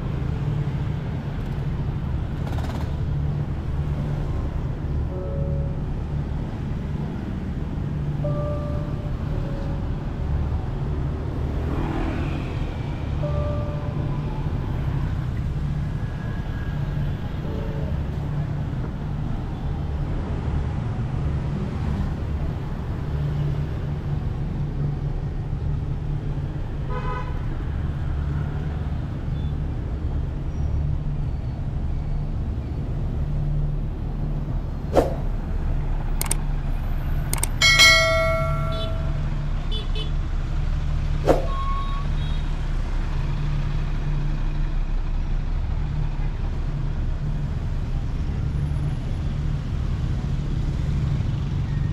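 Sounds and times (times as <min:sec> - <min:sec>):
traffic rumble: 0:00.0 - 0:51.9
sharp clicks: 0:36.2 - 0:36.4, 0:37.3 - 0:37.6
vehicle horn honking: 0:37.9 - 0:40.1.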